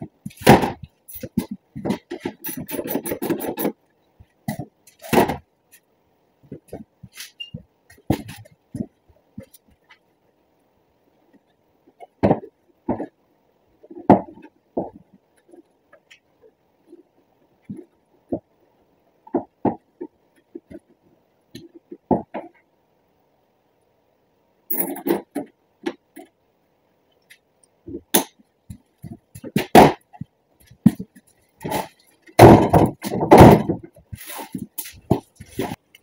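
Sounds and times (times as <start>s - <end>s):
knocking and rattling: 0.0s - 5.5s, 6.4s - 10.0s, 11.3s - 13.2s, 13.8s - 18.5s, 19.2s - 22.7s, 24.7s - 26.4s, 27.8s - 36.0s
truck parts knocking and clicking: 0.0s - 10.1s, 13.8s - 16.4s, 19.3s - 22.7s, 24.8s - 26.4s, 27.2s - 36.0s.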